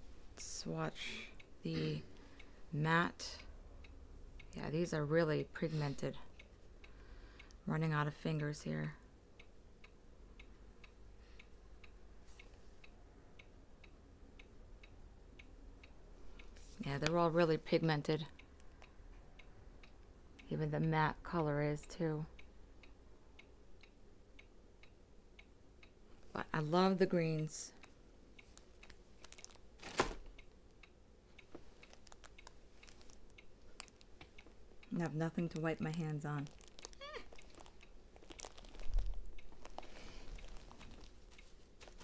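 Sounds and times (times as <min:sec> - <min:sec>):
clock ticking: 0:00.4 - 0:38.4
small objects clicking and tapping: 0:31.5 - 0:34.4, 0:35.4 - 0:42.0.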